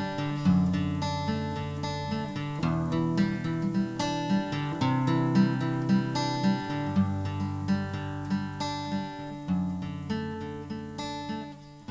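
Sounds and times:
acoustic guitar music: 0.0s - 11.9s.

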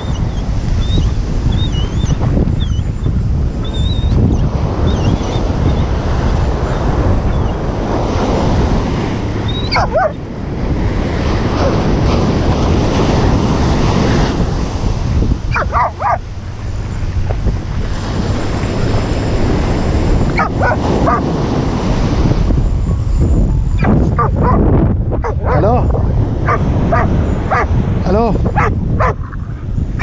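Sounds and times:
wind buffeting microphone: 0.0s - 30.0s
surf breaking on sand: 2.2s - 29.1s
dog barking: 9.5s - 10.2s, 11.6s - 11.8s, 15.5s - 16.3s, 20.4s - 21.3s, 23.8s - 25.8s, 26.4s - 27.8s, 28.5s - 29.4s.

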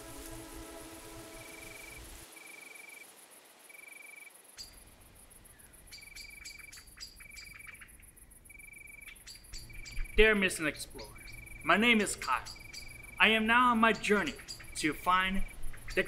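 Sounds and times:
crickets chirping: 0.0s - 16.0s
steady high insect trill: 0.0s - 16.0s
birds chirping: 4.0s - 16.0s.

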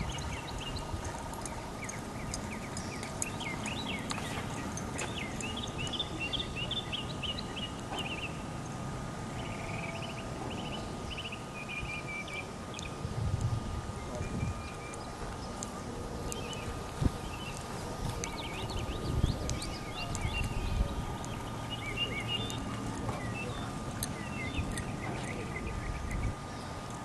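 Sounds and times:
horse hooves on turf: 0.0s - 6.1s
small birds chirping: 0.0s - 27.0s.

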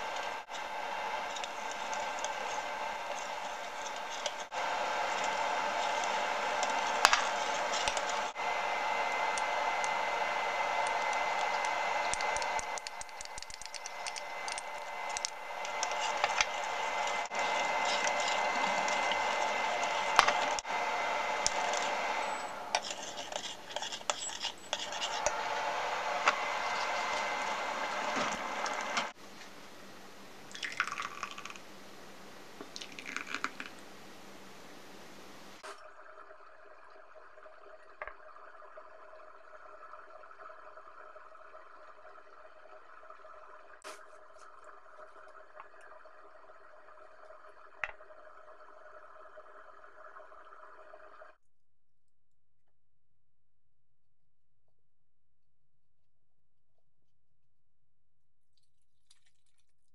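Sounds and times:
spoon clinking and scraping pot: 21.4s - 25.4s
thick soup pouring splashily: 30.5s - 31.6s.

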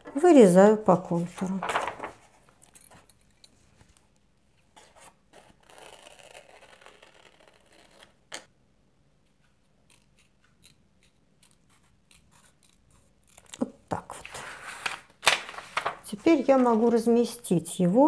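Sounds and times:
paper rustling: 1.1s - 3.1s, 9.3s - 17.4s
scissors snipping paper: 9.4s - 13.7s.

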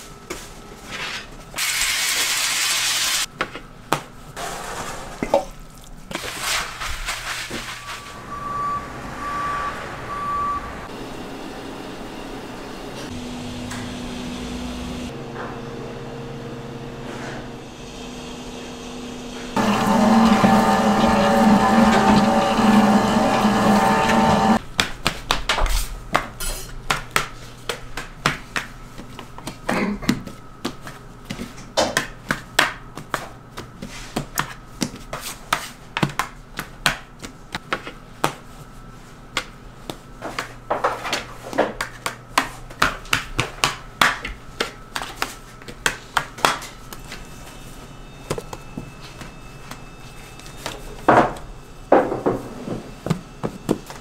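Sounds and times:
utensils and trays clattering: 4.4s - 8.3s, 25.8s - 26.8s.

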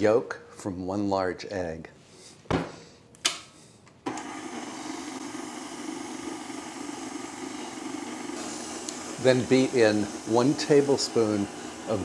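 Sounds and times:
stand mixer humming: 4.1s - 12.0s.

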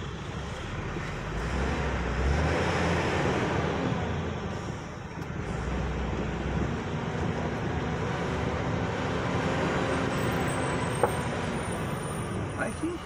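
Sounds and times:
vehicle engine hum and road noise: 0.0s - 13.0s.

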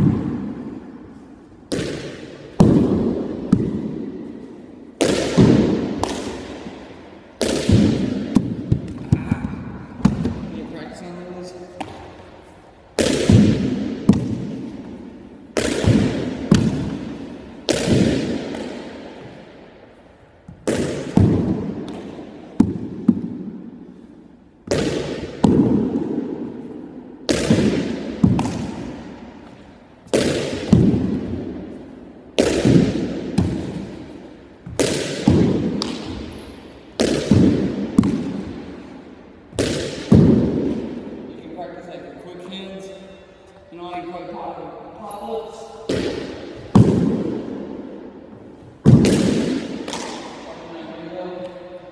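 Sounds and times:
echo in bare room: 0.0s - 51.9s.

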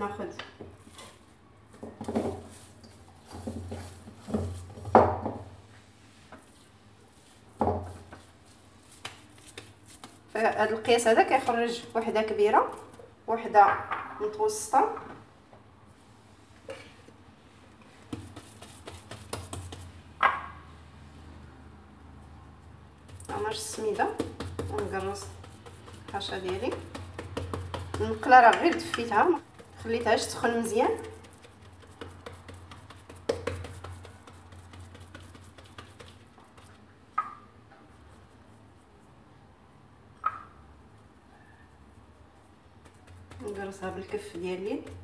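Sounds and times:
fingertips pressing dough in pan: 18.1s - 20.0s, 23.0s - 36.8s.

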